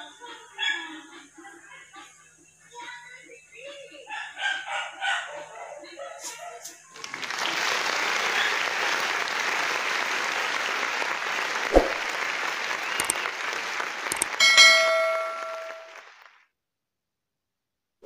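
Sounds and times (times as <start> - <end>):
applause: 6.9 - 16.4
bell chime: 14.2 - 16.1.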